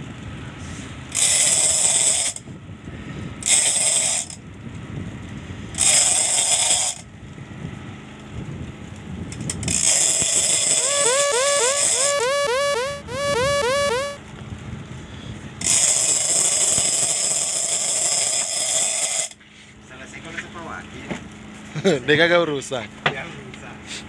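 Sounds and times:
fishing reel gears whirring: 0:10.4 - 0:14.2.

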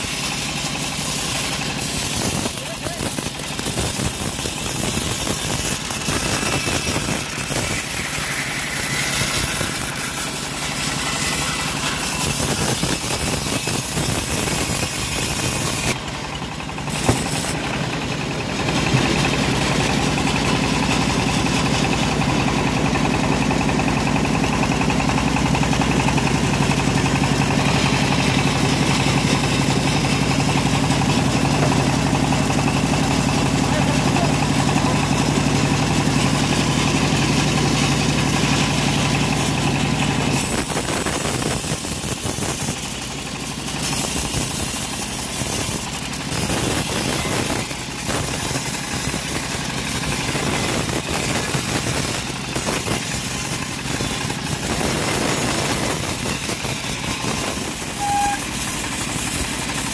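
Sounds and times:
band saw cutting a log: 0:00.0 - 0:59.9.

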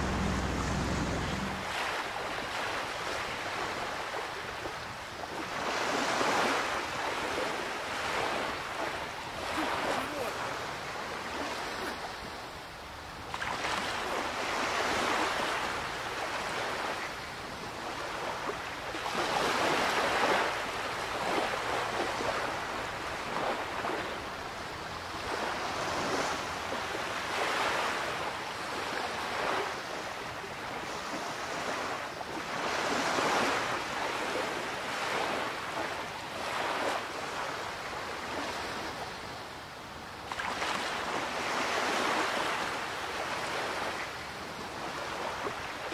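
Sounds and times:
wind on microphone: 0:00.0 - 0:02.6
water splashing around rowboat: 0:00.0 - 0:12.5, 0:13.1 - 0:39.2, 0:40.2 - 0:45.9.

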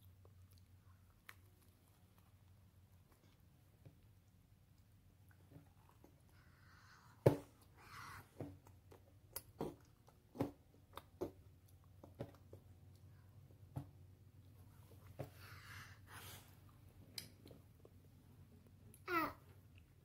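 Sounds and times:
lip smacks and chewing: 0:00.0 - 0:06.4
faint breathing: 0:06.3 - 0:08.4, 0:15.2 - 0:16.7.

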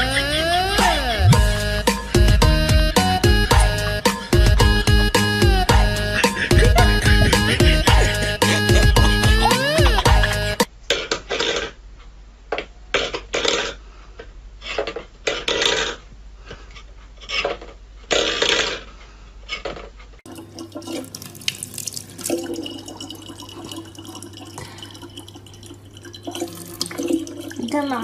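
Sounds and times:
low hum: 0:00.0 - 0:10.6
faucet running into plastic bottle: 0:20.3 - 0:28.0.

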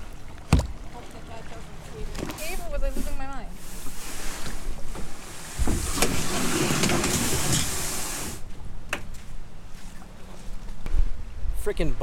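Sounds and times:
plastic kayak scraping over sand: 0:02.3 - 0:08.4.

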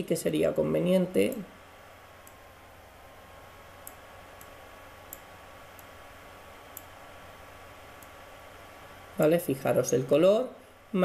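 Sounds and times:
microphone hiss and hum: 0:00.0 - 0:11.0
computer mouse clicks: 0:03.8 - 0:06.0, 0:06.7 - 0:07.0, 0:08.0 - 0:08.2.

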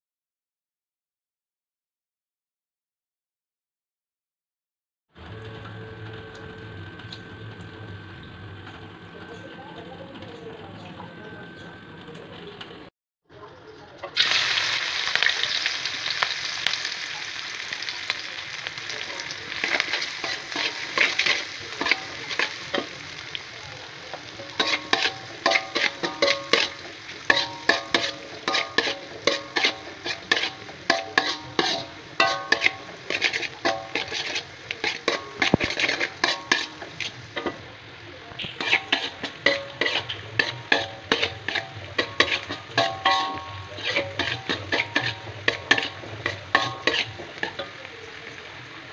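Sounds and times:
food sizzling in hot oil: 0:14.1 - 0:48.9
spatula scraping a wok: 0:14.2 - 0:37.7, 0:38.4 - 0:47.9.

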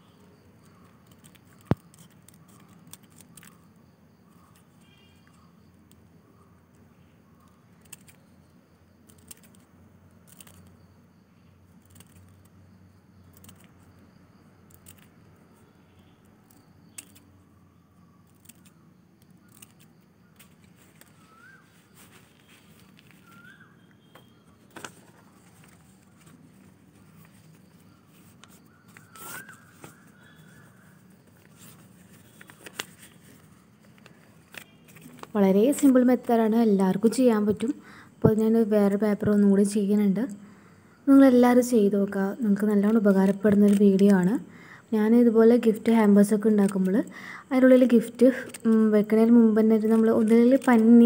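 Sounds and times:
paper rustling: 0:00.7 - 0:03.6, 0:19.4 - 0:36.3, 0:42.8 - 0:44.3, 0:47.9 - 0:51.0
scissors snipping paper: 0:42.8 - 0:44.2, 0:49.9 - 0:51.0.

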